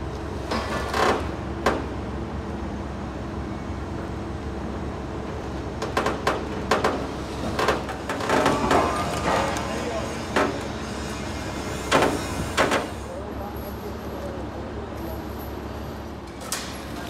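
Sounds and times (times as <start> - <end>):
low mechanical hum: 0.0 - 17.0
sharp knocks and clanks: 5.8 - 13.0.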